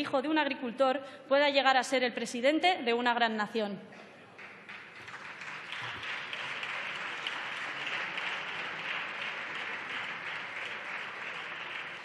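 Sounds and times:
group applauding: 0:04.3 - 0:12.0.

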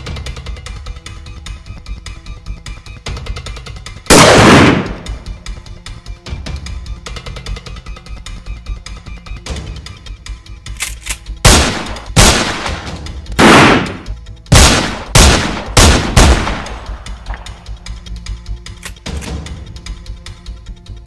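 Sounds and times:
background music: 0:00.0 - 0:21.0
loud gunshots: 0:04.1 - 0:05.2, 0:11.4 - 0:17.4.

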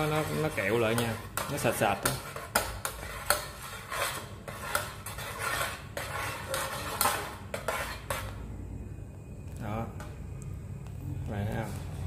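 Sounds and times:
metal spoon scraping a pot: 0:00.0 - 0:08.5.

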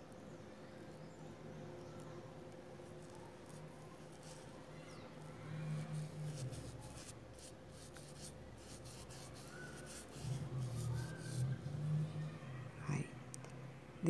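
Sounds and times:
paintbrush brushing strokes: 0:02.8 - 0:11.9.

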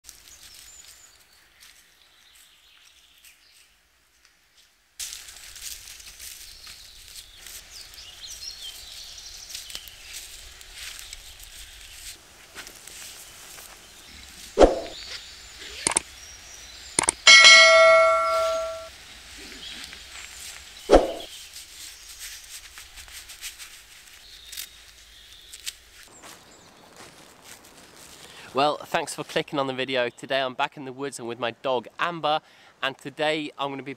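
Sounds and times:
footsteps through dry leaves: 0:05.0 - 0:14.6, 0:20.2 - 0:28.5.

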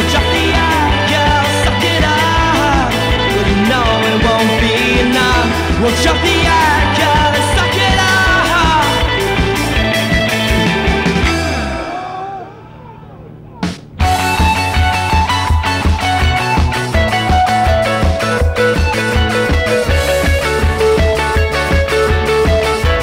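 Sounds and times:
band song with singing: 0:00.0 - 0:12.9.

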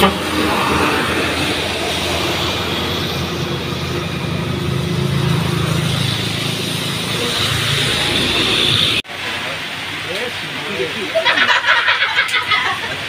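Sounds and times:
motorbike passing: 0:00.0 - 0:09.0
truck diesel engine droning: 0:00.0 - 0:09.0
road noise: 0:00.0 - 0:13.0.

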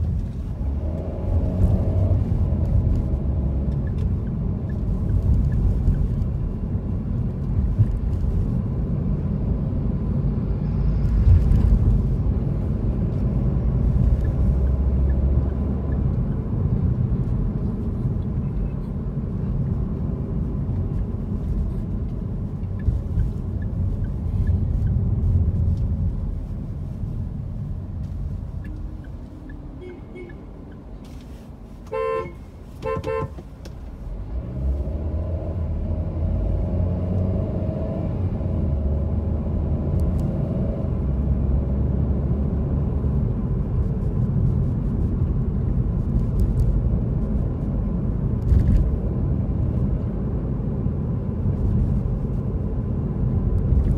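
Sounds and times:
car engine and road noise: 0:00.0 - 0:53.9
vehicle horn toots: 0:29.8 - 0:30.6, 0:31.9 - 0:33.4.

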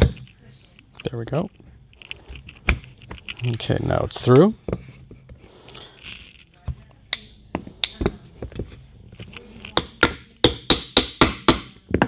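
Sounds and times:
hammer tapping metal shaft: 0:06.7 - 0:08.6, 0:09.6 - 0:12.0.

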